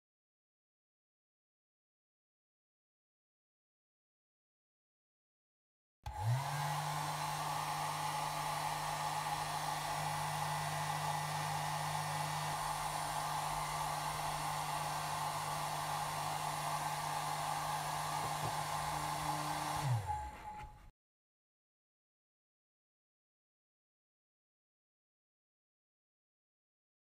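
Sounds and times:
hair dryer running: 6.1s - 20.9s.

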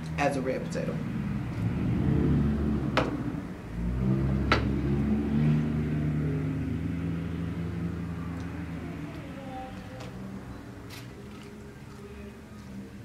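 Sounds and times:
low humming drone: 0.0s - 13.0s.

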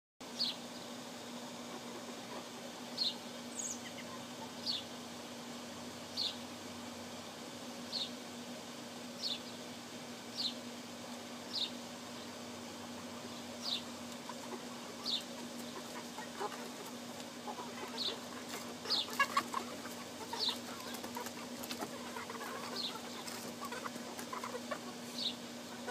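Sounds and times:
steady low hum: 0.2s - 25.9s
hen clucking: 1.5s - 5.0s, 12.8s - 25.9s
bird chirping: 3.0s - 4.9s, 6.2s - 6.4s, 9.2s - 9.6s, 13.2s - 13.9s, 15.0s - 16.6s, 17.5s - 25.9s.

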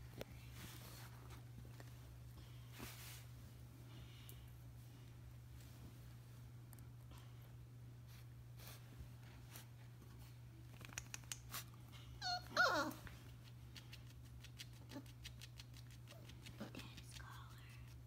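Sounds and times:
steady low hum: 0.0s - 18.0s
puppy whining yelps: 12.2s - 13.0s.

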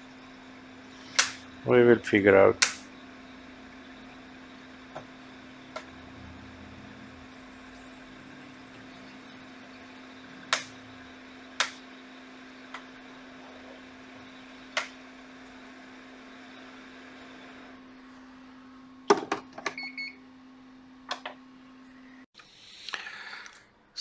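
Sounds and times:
electronic equipment humming: 0.0s - 22.3s
sharp clicks: 2.6s - 2.9s, 11.6s - 11.8s.

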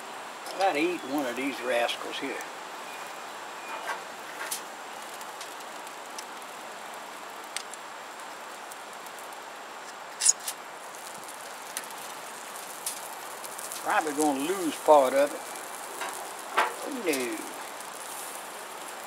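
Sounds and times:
sausages sizzling on a grill: 0.0s - 19.0s.

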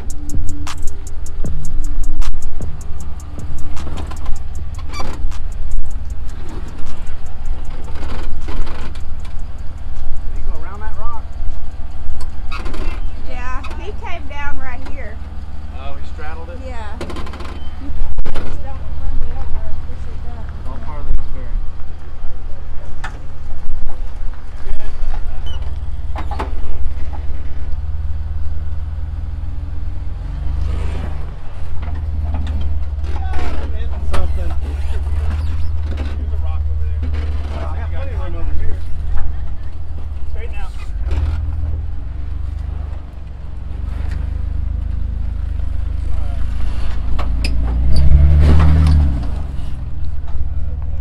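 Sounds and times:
rapid even ticking: 0.0s - 14.2s
vehicle engine rumbling: 0.0s - 51.0s.

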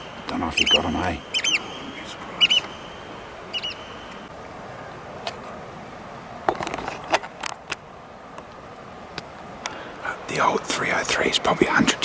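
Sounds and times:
bird chirp: 0.0s - 4.3s
steady outdoor hiss: 0.0s - 12.0s.

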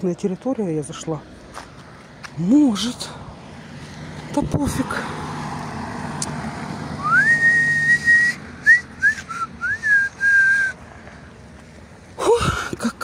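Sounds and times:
person whistling a tune: 7.0s - 10.8s.

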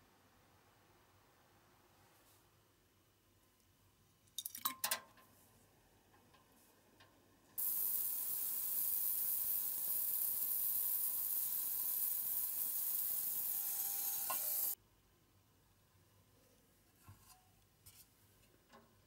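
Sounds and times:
ultrasonic cleaner hissing: 7.6s - 14.8s.

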